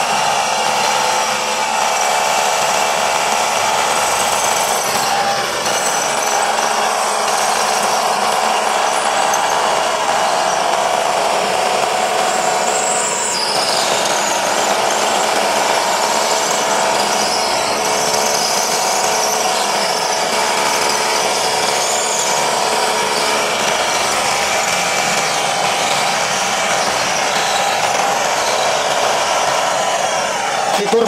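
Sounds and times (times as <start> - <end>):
rotary hammer drilling into concrete: 0.0 - 31.0.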